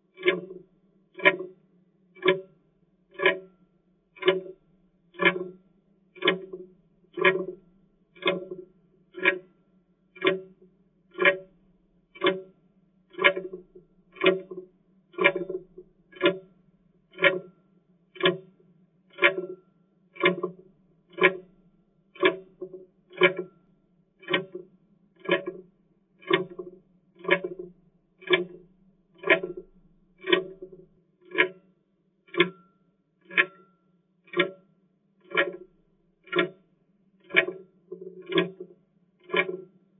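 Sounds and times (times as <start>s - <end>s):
clock ticking: 0.2s - 0.6s, 1.2s - 1.5s, 2.2s - 2.5s, 3.1s - 3.5s, 4.2s - 5.6s, 6.2s - 6.6s, 7.2s - 7.6s, 8.2s - 9.5s, 10.2s - 11.5s, 12.2s - 12.5s, 13.1s - 16.5s, 17.1s - 17.5s, 18.2s - 18.5s, 19.1s - 19.5s, 20.2s - 21.5s, 22.2s - 23.6s, 24.2s - 25.6s, 26.2s - 31.6s, 32.3s - 33.7s, 34.3s - 34.6s, 35.2s - 36.6s, 37.2s - 39.8s.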